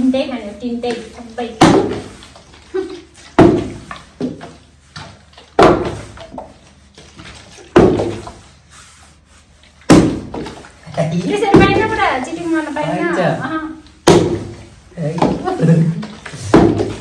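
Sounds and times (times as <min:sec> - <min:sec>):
plastic bottle thudding on rug: 0:03.3 - 0:04.4, 0:05.6 - 0:06.2, 0:07.7 - 0:08.5, 0:09.9 - 0:10.7, 0:14.0 - 0:15.6, 0:16.3 - 0:17.0.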